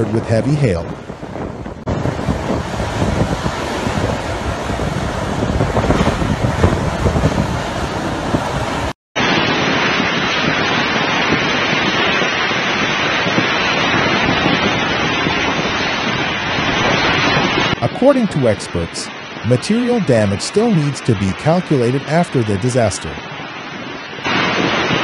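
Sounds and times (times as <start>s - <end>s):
wind buffeting microphone: 0.0s - 18.2s
heavy rain: 0.6s - 25.0s.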